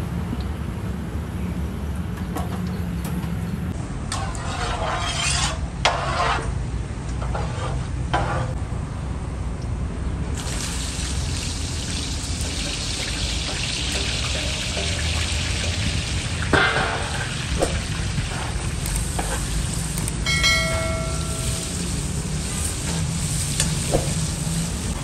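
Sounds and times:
onions frying sizzle: 0:10.4 - 0:25.0.

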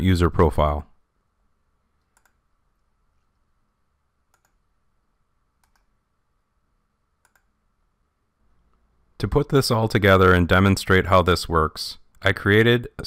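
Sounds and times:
computer mouse clicks: 0:02.0 - 0:03.4, 0:04.3 - 0:04.6, 0:05.6 - 0:06.0, 0:07.2 - 0:07.5.

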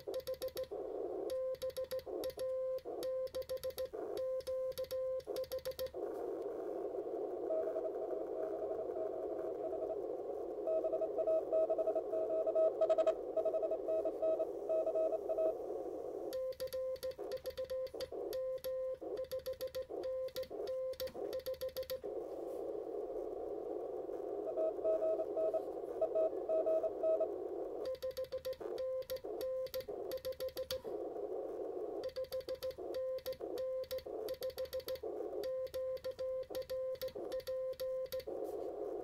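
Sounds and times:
radio band hiss: 0:00.0 - 0:01.3, 0:05.2 - 0:16.4, 0:17.1 - 0:19.2, 0:19.8 - 0:27.9, 0:30.7 - 0:32.0, 0:32.7 - 0:36.5, 0:37.1 - 0:39.0
faint morse code signal: 0:00.0 - 0:39.0.

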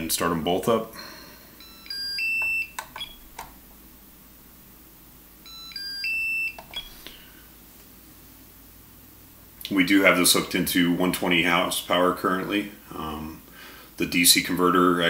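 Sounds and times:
charger electronic beeps: 0:01.6 - 0:03.4, 0:05.5 - 0:07.2
button clicks: 0:06.6 - 0:07.1.

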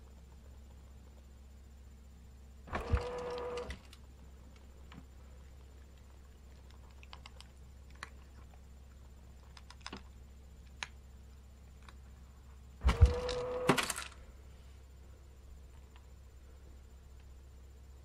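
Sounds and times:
pet feeder motor hum: 0:00.0 - 0:18.0
cat eating dry kibble: 0:03.8 - 0:12.2.

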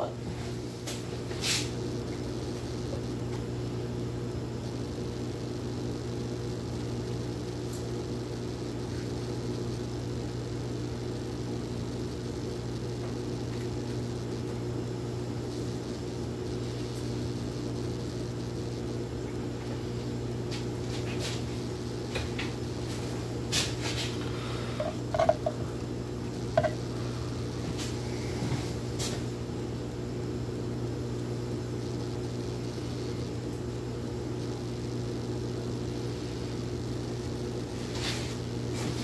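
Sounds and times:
steady mechanical hum: 0:00.0 - 0:39.0.

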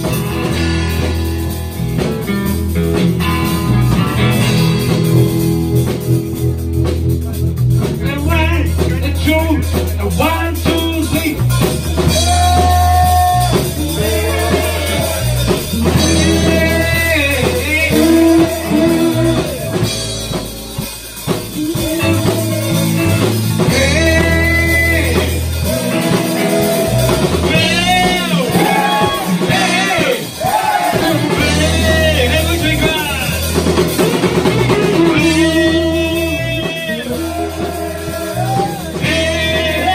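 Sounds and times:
rock band playing: 0:00.0 - 0:39.9
man singing: 0:07.9 - 0:20.4, 0:21.2 - 0:39.9.

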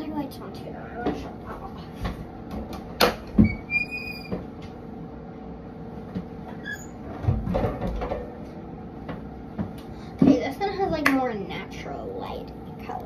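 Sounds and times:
high squeak: 0:03.4 - 0:04.4, 0:06.6 - 0:07.0.

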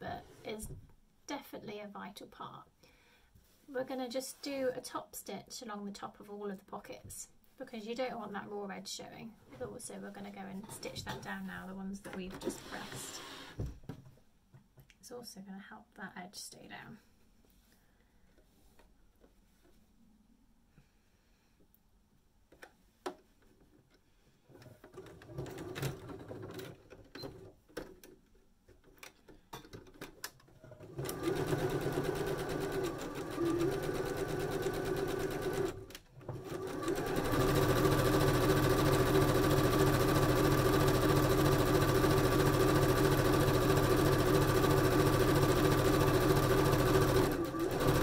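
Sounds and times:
sewing machine running: 0:30.8 - 0:48.0.

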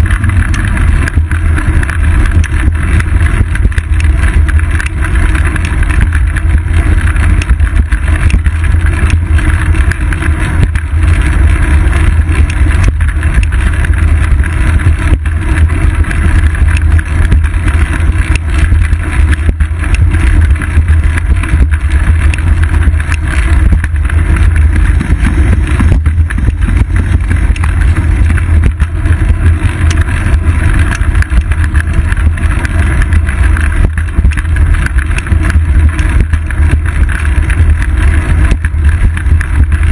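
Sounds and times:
wind and bicycle ride rumble: 0:00.0 - 0:39.9.

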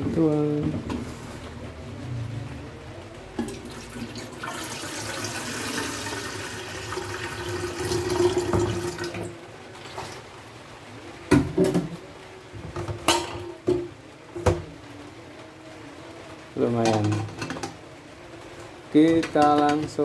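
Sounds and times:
water pouring into kettle: 0:03.4 - 0:10.3.

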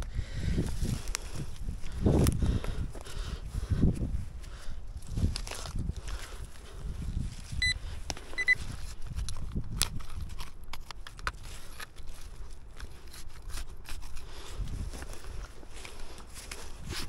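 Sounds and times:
hand tool digging in earth: 0:04.9 - 0:17.0.

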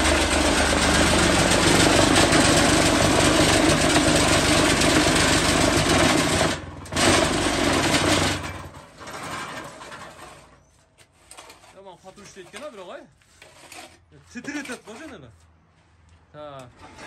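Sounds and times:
vibration motor buzzing: 0:00.0 - 0:08.4
scraper pushing concrete mix: 0:00.0 - 0:15.3.

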